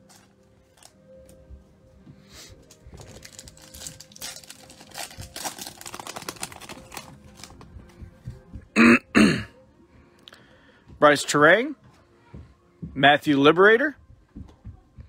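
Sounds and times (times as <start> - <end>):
foil wrapper crinkling: 2.6 - 7.7.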